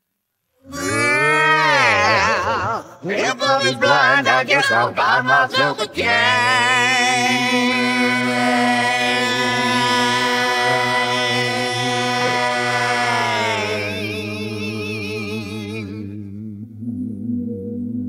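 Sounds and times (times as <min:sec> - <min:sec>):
person singing long note: 0:06.2 - 0:17.0.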